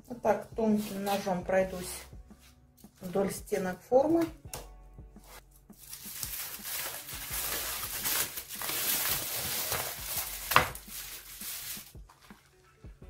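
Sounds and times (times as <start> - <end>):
aluminium foil crinkling: 5.8 - 12.6.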